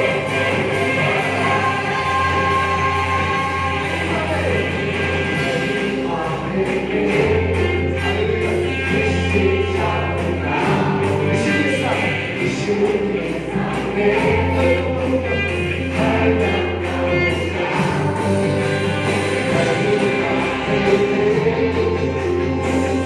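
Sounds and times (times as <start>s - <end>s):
gospel band playing: 0.0s - 23.0s
group of voices singing: 0.0s - 23.0s
steady drum beat: 0.0s - 23.0s.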